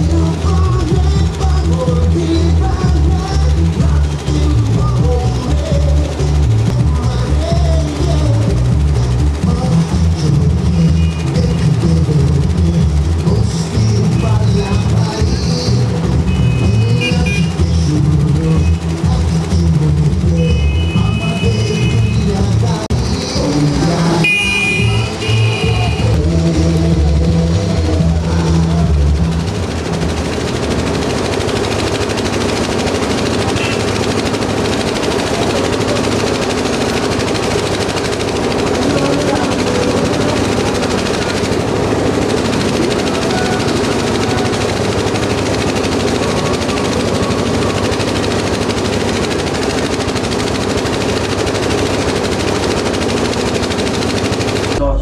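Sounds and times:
music: 0.0s - 24.0s
dense rapid crackling: 0.0s - 55.0s.

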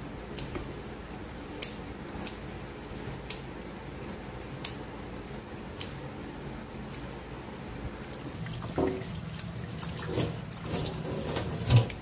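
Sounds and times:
scissors snipping stems: 0.3s - 0.7s, 1.6s - 2.5s, 3.2s - 3.5s, 5.7s - 6.0s
tap water running onto leaves: 8.1s - 12.0s.

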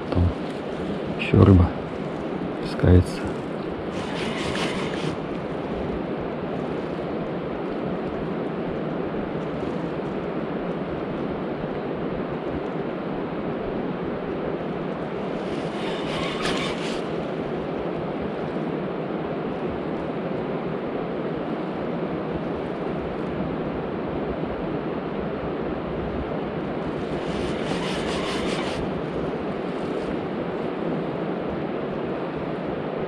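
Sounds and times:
steady outdoor rushing noise: 0.0s - 33.0s
rattly hisses: 3.9s - 5.2s, 15.6s - 17.1s, 27.2s - 28.9s.

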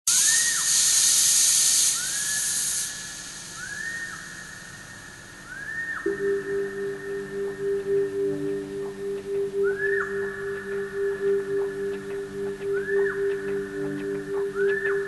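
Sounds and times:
loud high hiss: 0.1s - 5.5s
low pulsing humming tone: 6.0s - 15.0s.

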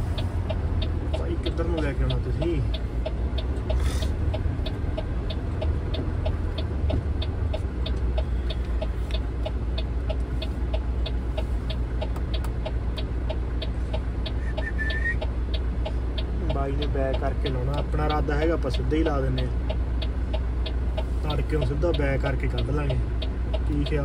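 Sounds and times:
diesel truck engine idling: 0.0s - 24.0s
fast mechanical ticking: 0.1s - 24.0s.

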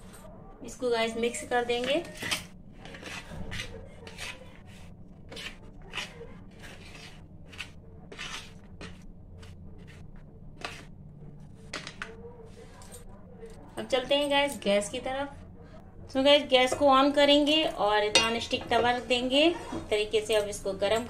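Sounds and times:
spoon scraping plastic tray: 2.8s - 9.0s.

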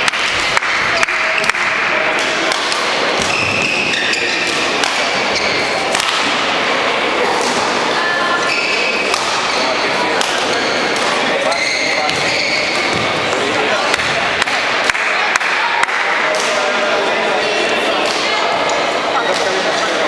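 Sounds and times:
indistinct voices: 0.0s - 20.0s
short high squeaks: 11.5s - 12.9s.

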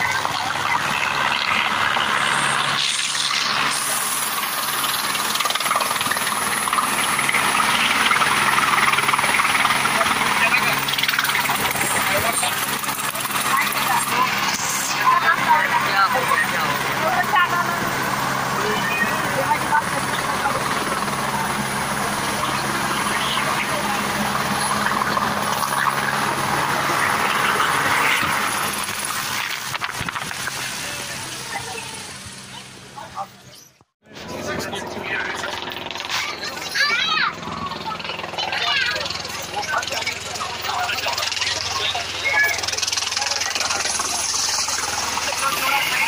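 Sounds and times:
helicopter rotor chop: 0.0s - 46.0s
turbine whine: 0.0s - 46.0s
rotor wash hiss: 1.2s - 15.7s.

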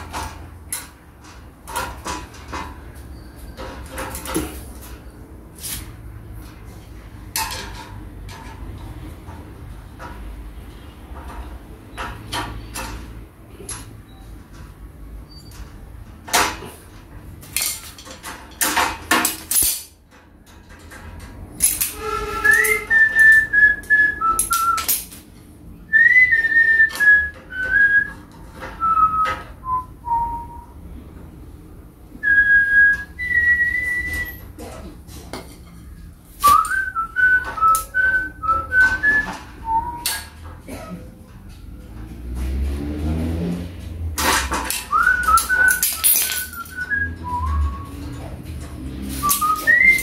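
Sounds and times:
metal hand tools clinking: 17.4s - 25.2s, 44.2s - 50.0s
person whistling a tune: 22.0s - 24.9s, 25.9s - 28.2s, 28.8s - 30.7s, 32.2s - 34.5s, 36.4s - 40.2s, 44.9s - 48.1s, 49.2s - 50.0s.

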